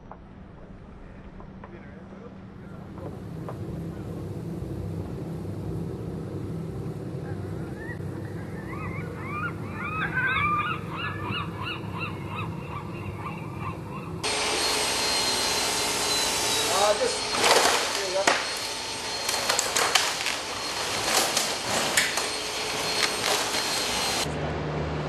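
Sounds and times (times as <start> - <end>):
steady low hum: 0.0 - 25.0
flock of birds calling: 7.3 - 24.3
workshop machinery rushing and whining: 14.2 - 25.0.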